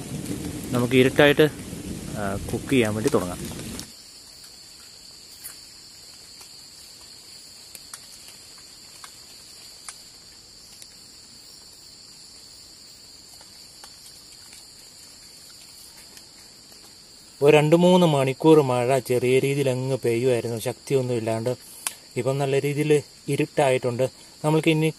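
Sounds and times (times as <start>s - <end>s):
crickets trilling: 0.0s - 24.9s
faint ticks: 3.8s - 11.8s, 13.2s - 17.0s, 21.6s - 22.1s.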